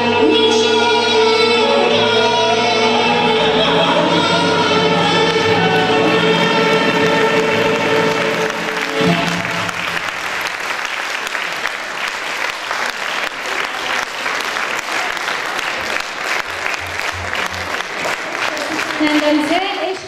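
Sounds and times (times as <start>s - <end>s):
audience applauding: 5.0s - 20.0s.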